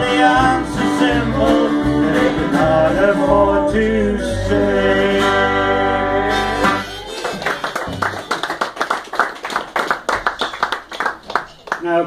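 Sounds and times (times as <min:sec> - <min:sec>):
man singing: 0:00.0 - 0:06.8
upright double bass: 0:00.0 - 0:07.1
acoustic guitars: 0:00.0 - 0:08.8
people clapping: 0:06.8 - 0:12.0.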